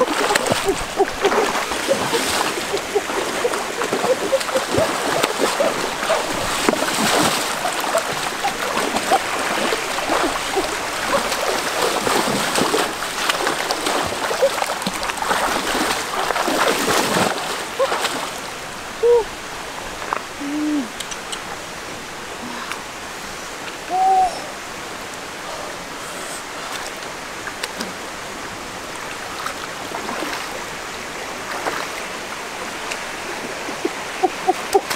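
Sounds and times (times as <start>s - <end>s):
hoot-like calls: 0.0s - 6.5s, 23.9s - 24.5s
hands splashing in water: 0.0s - 18.3s
stream running: 0.0s - 34.9s.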